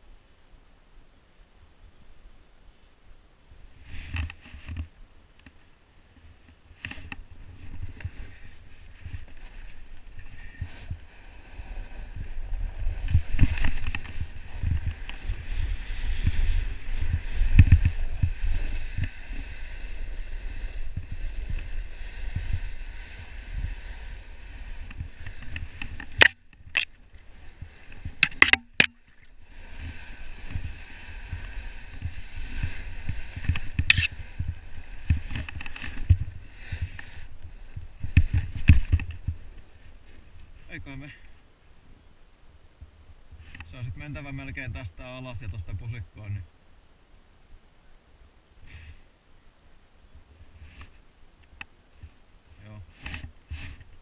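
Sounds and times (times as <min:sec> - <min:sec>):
snowboard scraping over snow: 0:03.6 - 0:04.9, 0:06.2 - 0:26.4, 0:27.0 - 0:28.2, 0:29.3 - 0:41.2
wind rumble on microphone: 0:06.1 - 0:41.2.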